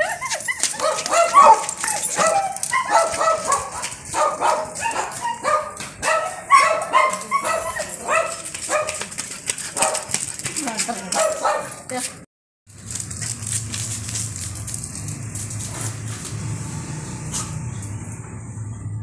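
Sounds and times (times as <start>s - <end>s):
dog yipping and barking: 0.0s - 9.0s, 9.8s - 10.1s, 11.2s - 11.8s, 17.3s - 17.7s.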